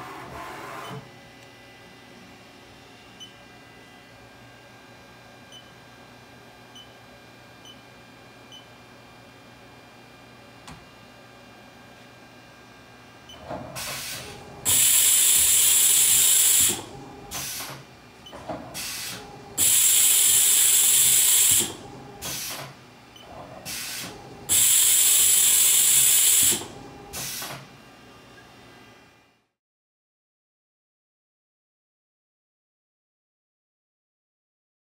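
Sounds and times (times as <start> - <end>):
tool changer arm clunks and whirs: 13.3 - 27.8
compressed air hiss: 13.8 - 17.8, 18.8 - 22.7, 23.7 - 26.6.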